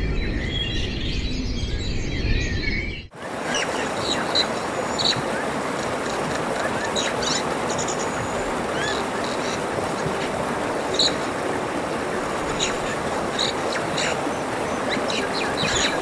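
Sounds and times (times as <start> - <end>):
steady rushing noise: 3.1 - 16.0
bird chirps and calls: 12.5 - 16.0.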